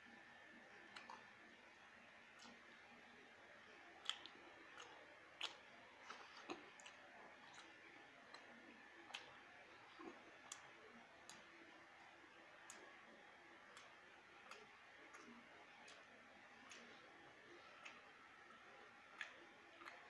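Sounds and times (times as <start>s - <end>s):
quiet hiss: 0.0s - 20.0s
soft eating clicks and smacks: 0.1s - 20.0s.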